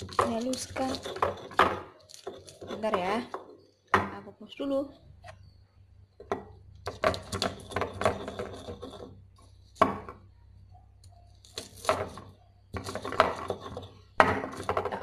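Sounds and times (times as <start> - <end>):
stone pestle grinding in mortar: 0.0 - 3.6, 6.8 - 9.2, 11.5 - 15.0.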